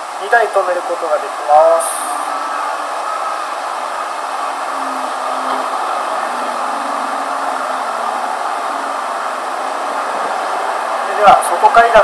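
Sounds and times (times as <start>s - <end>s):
steady rushing noise: 0.0s - 12.0s
faint low hum: 4.7s - 10.8s.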